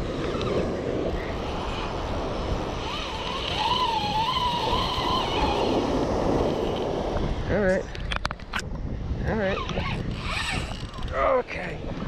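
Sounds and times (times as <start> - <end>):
thin wavering whine: 0.0 - 6.9
ocean surf: 0.0 - 7.5
wind on microphone: 0.0 - 12.0.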